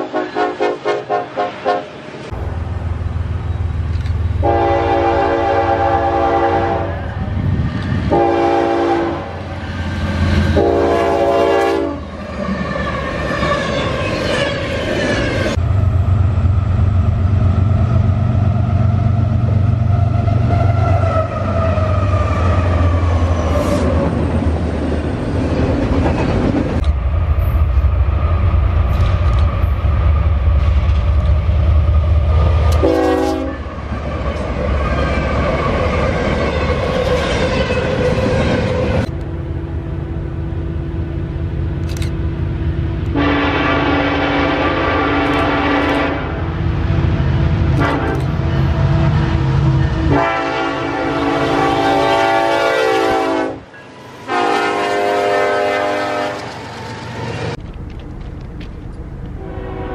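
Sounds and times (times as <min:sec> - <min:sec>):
locomotive horn blasts: 0:00.0 - 0:02.0, 0:04.4 - 0:07.1, 0:08.1 - 0:09.4, 0:10.5 - 0:12.1, 0:32.7 - 0:33.7, 0:43.1 - 0:46.5, 0:47.8 - 0:48.8, 0:49.8 - 0:53.7, 0:54.3 - 0:56.5, 0:59.4 - 0:59.9
locomotive engines droning: 0:00.0 - 0:59.9
train rolling by: 0:00.0 - 0:59.9.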